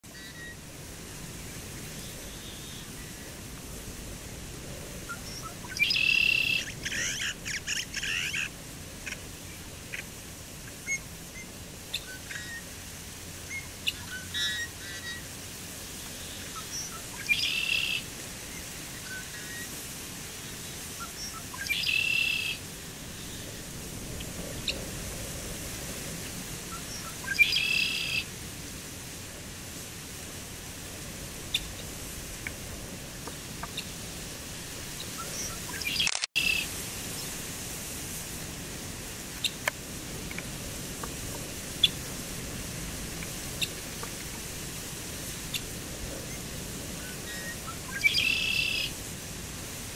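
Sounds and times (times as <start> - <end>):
blackbird trilled song: 5.2 - 8.5, 16.5 - 18.0, 21.0 - 22.6, 26.7 - 28.2, 35.2 - 36.6, 47.2 - 48.9.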